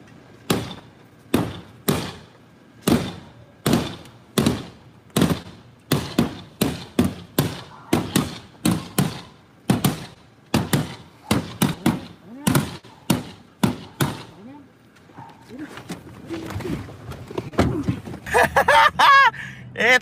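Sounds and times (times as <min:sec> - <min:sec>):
sharp bangs on car body: 0:00.5 - 0:14.3.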